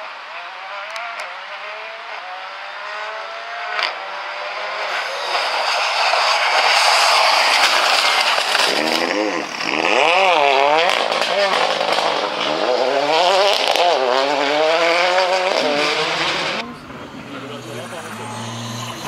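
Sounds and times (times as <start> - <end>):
rally car engine revving: 0.0 - 19.0
tyre and spray noise: 4.8 - 14.4
sharp crack: 4.9 - 10.0.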